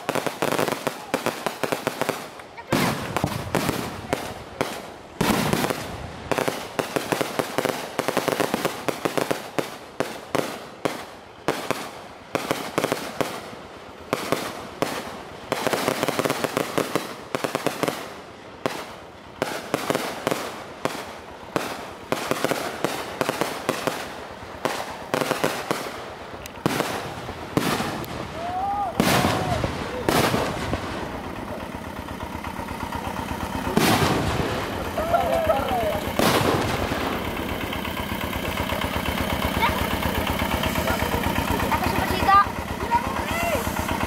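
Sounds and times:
firecrackers crackling: 0:00.0 - 0:44.0.

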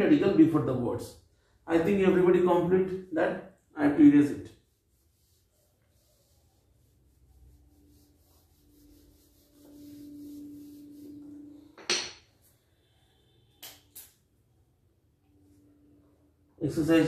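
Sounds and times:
duster rubbing whiteboard: 0:04.5 - 0:11.7
low steady hum: 0:04.6 - 0:13.1.

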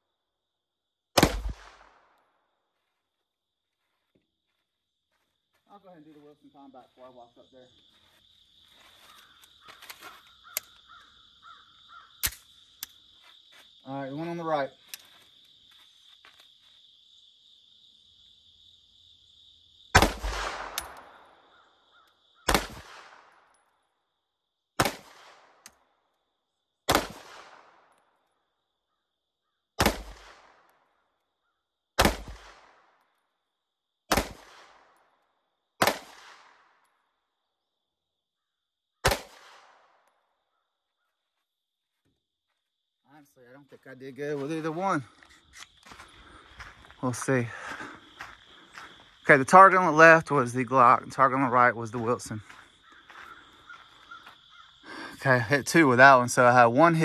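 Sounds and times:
pistol shots with echo: 0:01.2 - 0:02.1, 0:20.0 - 0:21.4, 0:22.5 - 0:23.4, 0:24.8 - 0:25.6, 0:26.9 - 0:27.9, 0:29.8 - 0:30.7, 0:32.0 - 0:32.9, 0:34.1 - 0:35.0, 0:35.8 - 0:36.7, 0:39.0 - 0:40.0.

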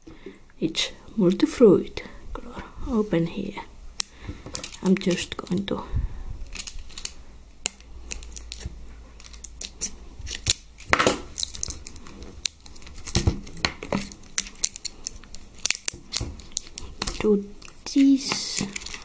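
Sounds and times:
plastic wrapper rustling: 0:04.5 - 0:05.7, 0:06.4 - 0:19.0
scissors snipping plastic wrapper: 0:06.5 - 0:19.0.

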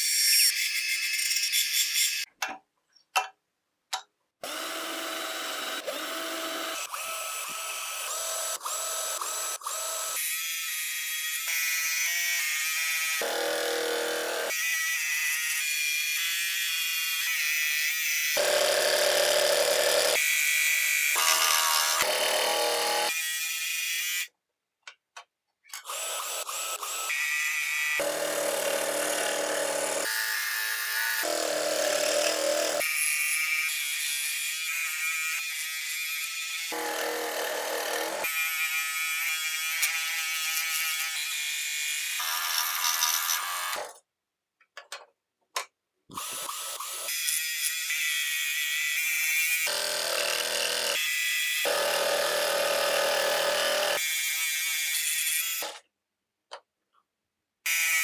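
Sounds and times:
power drill boring: 0:04.4 - 0:10.3, 0:13.0 - 0:14.7, 0:18.4 - 0:20.3, 0:21.0 - 0:23.2, 0:25.8 - 0:33.2, 0:36.7 - 0:38.8, 0:41.8 - 0:44.0, 0:46.1 - 0:48.4, 0:49.3 - 0:55.8
scroll saw cutting wood: 0:04.4 - 0:24.3, 0:25.8 - 0:44.0, 0:46.1 - 0:55.9.

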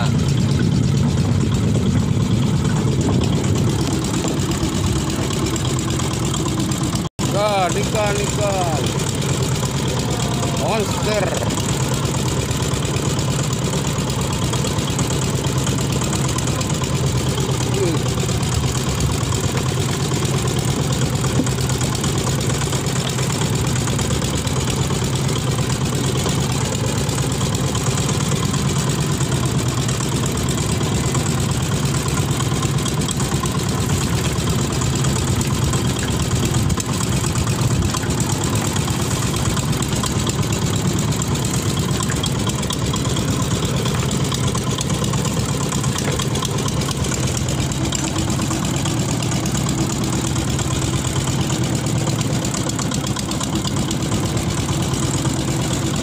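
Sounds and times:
boat engine idling: 0:00.0 - 0:56.0.

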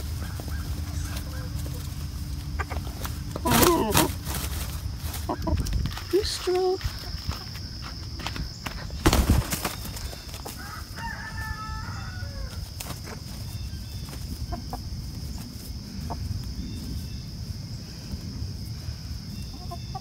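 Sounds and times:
hen clucking: 0:00.0 - 0:06.2, 0:09.4 - 0:15.0, 0:15.7 - 0:16.5, 0:19.4 - 0:20.0
wing flapping and scuffling: 0:00.0 - 0:18.7
rooster crowing: 0:00.2 - 0:01.9, 0:10.4 - 0:12.7.

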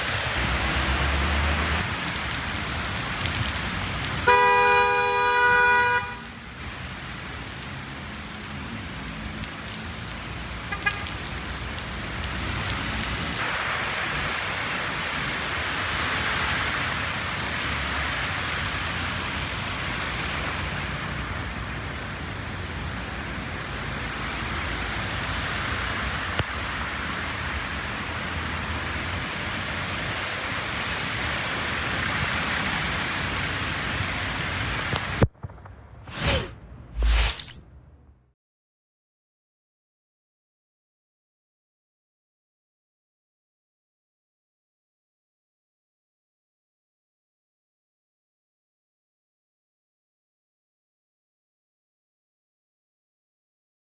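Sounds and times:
heavy rain: 0:00.0 - 0:35.3
car tyres on wet asphalt: 0:00.0 - 0:37.1
car horn blaring: 0:04.2 - 0:06.2.

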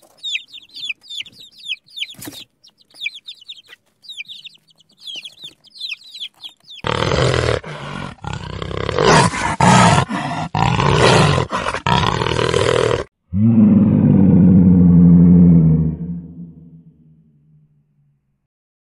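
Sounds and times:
baby chicks peeping: 0:00.0 - 0:08.4
tiger roaring and growling: 0:06.8 - 0:16.8.

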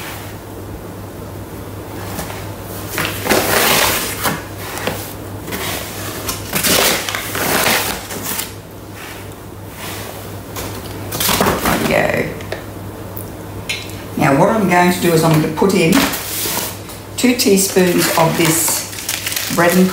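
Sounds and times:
paper bag rustling: 0:15.7 - 0:16.9, 0:17.5 - 0:19.9.

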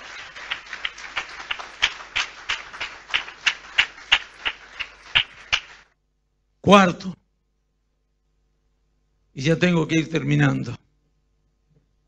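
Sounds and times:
congregation clapping: 0:00.0 - 0:05.9.

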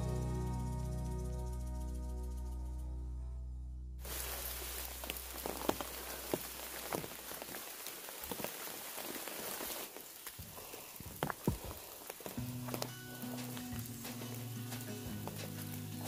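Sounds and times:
rain hissing: 0:04.0 - 0:16.0
raindrops tapping: 0:04.0 - 0:16.0.

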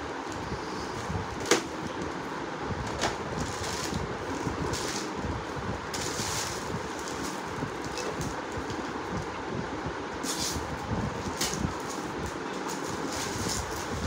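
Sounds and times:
gift wrapping rustling: 0:00.3 - 0:05.2, 0:05.9 - 0:08.9, 0:11.1 - 0:14.0.

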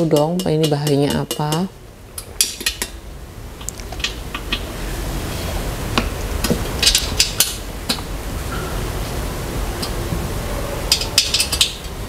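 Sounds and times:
taps on hollow metal tube: 0:00.0 - 0:01.7.

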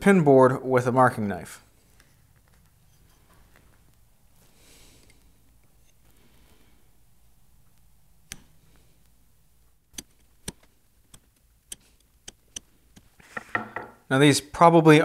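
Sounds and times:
knife and wooden boards tapping: 0:13.3 - 0:14.0.

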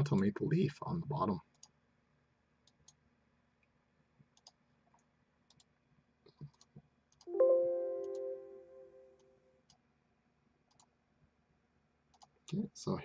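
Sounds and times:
computer mouse clicks: 0:01.5 - 0:01.8, 0:04.2 - 0:05.7, 0:06.4 - 0:07.3, 0:10.7 - 0:10.9, 0:12.1 - 0:12.6
chime-like tone: 0:07.3 - 0:09.1.

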